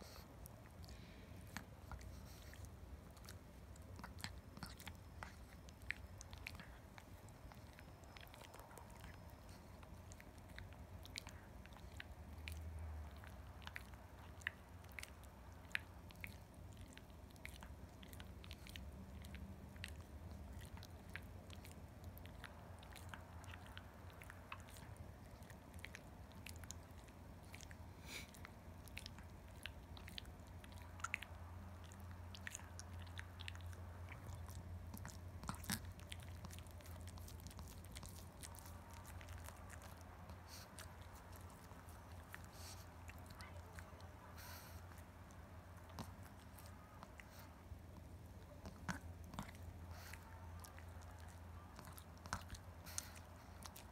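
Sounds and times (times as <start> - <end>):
dog gnawing a chew: 0.0 - 53.9.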